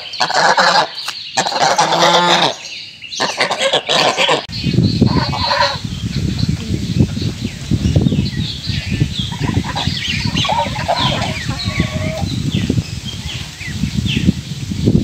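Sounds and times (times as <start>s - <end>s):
geese calling: 0.0s - 5.9s, 9.2s - 12.3s.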